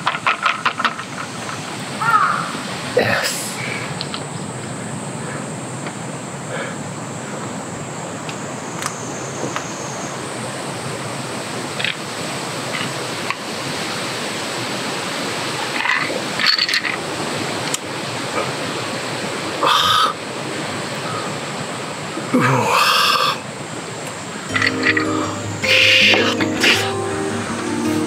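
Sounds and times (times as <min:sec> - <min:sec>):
flowing water: 0:10.4 - 0:28.0.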